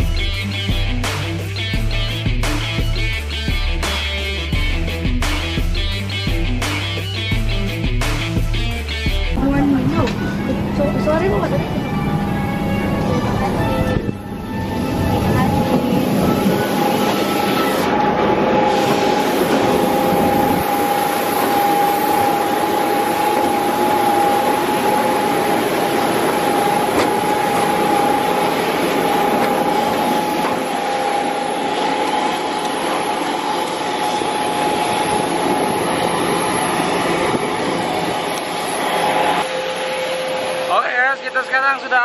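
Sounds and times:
jet engine whine: 0:00.0 - 0:42.0
loud even rushing noise: 0:15.0 - 0:41.5.

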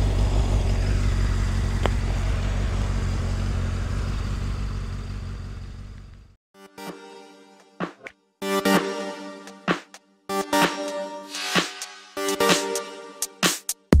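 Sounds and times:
engine idling: 0:00.0 - 0:06.4
music: 0:06.6 - 0:14.0.

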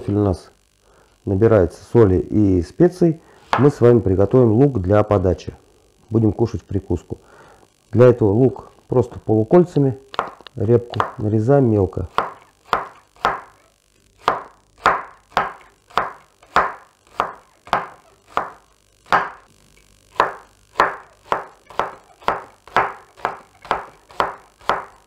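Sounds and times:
knife chopping on wooden board: 0:12.1 - 0:13.5, 0:14.2 - 0:19.4, 0:20.1 - 0:25.0.

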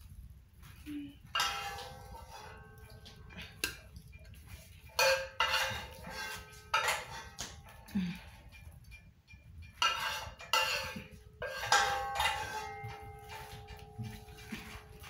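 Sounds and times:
metal plate knocking and clinking: 0:01.3 - 0:07.9, 0:08.5 - 0:15.0.

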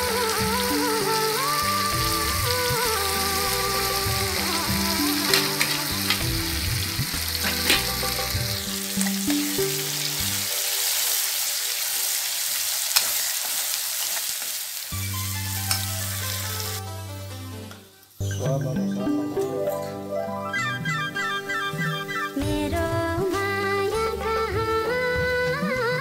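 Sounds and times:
paste sizzling in hot oil: 0:00.0 - 0:16.8.

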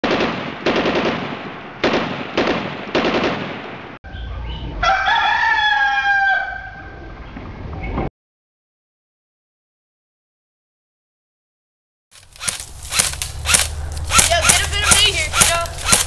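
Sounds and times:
automatic gunfire: 0:00.0 - 0:03.6, 0:12.4 - 0:16.0
rooster crowing: 0:04.1 - 0:07.1.

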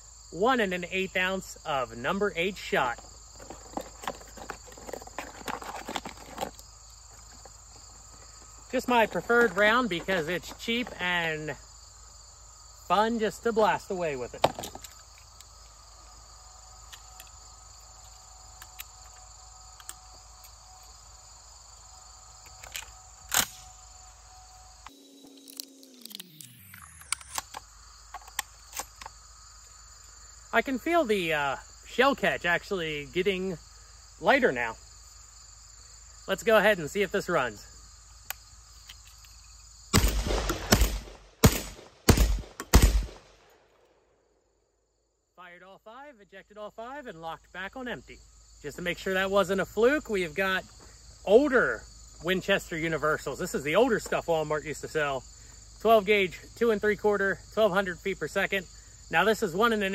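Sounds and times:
insects chirping: 0:00.0 - 0:59.9
shotgun shots: 0:39.9 - 0:43.4.

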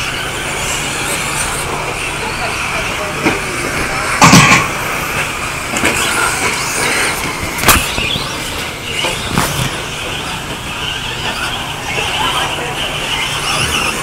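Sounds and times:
radio-controlled trucks running: 0:00.0 - 0:14.0
sharp knocks: 0:04.2 - 0:04.8.

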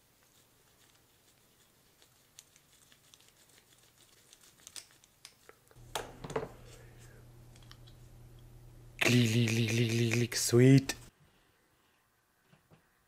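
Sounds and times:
gloves rustling: 0:00.0 - 0:08.2.

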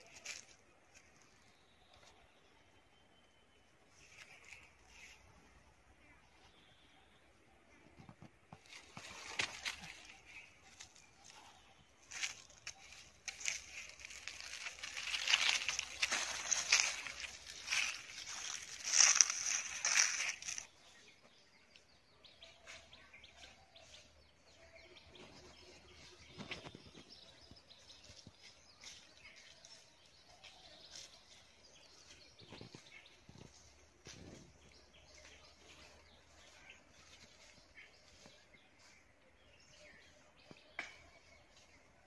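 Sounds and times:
footsteps crunching dry leaves: 0:00.0 - 0:01.5, 0:08.6 - 0:20.8, 0:25.0 - 0:40.6.

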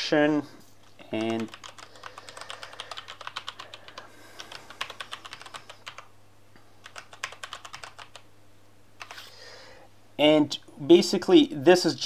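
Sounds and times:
typing on computer keyboard: 0:01.0 - 0:06.1, 0:06.8 - 0:08.3.

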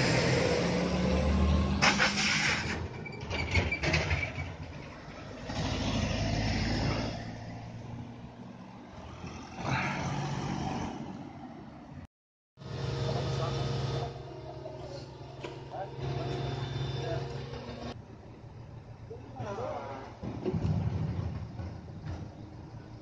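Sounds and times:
truck diesel engine droning: 0:00.0 - 0:03.4, 0:12.6 - 0:23.0
vehicles driving past: 0:00.0 - 0:23.0
trailer knocks and rattles: 0:20.0 - 0:23.0.

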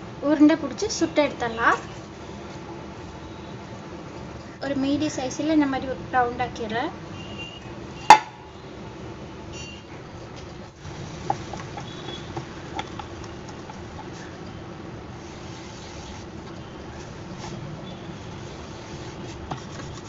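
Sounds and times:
rolling pin rolling dough: 0:10.8 - 0:14.4, 0:15.1 - 0:20.0.

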